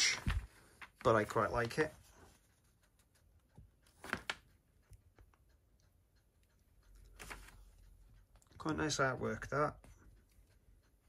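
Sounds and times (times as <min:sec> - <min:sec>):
paper poster rustling: 0:00.0 - 0:03.2, 0:03.9 - 0:04.5, 0:07.1 - 0:07.7.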